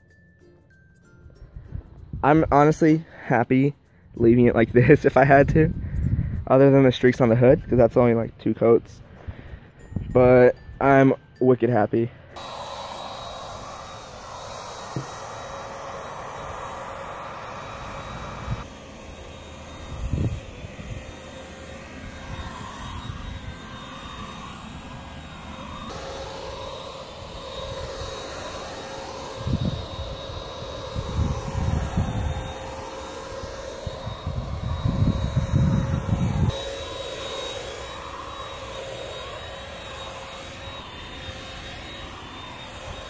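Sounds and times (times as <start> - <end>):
paint sprayer motor whine: 12.3 - 43.0
spray hissing: 12.4 - 43.0.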